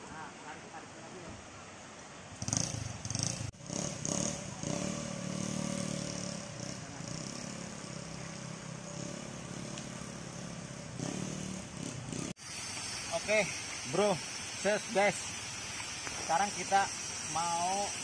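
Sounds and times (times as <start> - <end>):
engine running at low speed: 2.4 - 12.4.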